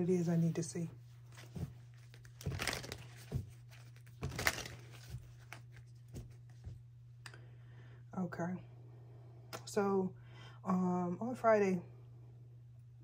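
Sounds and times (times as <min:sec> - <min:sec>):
steady low hum: 0:00.0 - 0:13.0
cards shuffling by hand: 0:01.3 - 0:06.8.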